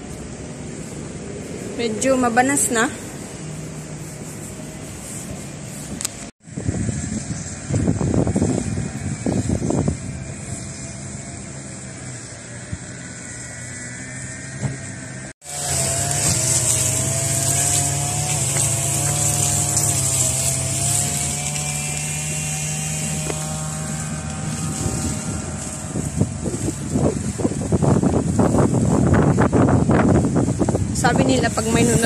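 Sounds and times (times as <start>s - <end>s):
vehicle engine hum: 0.0s - 32.0s
wind hiss on microphone: 4.1s - 11.0s, 16.1s - 32.0s.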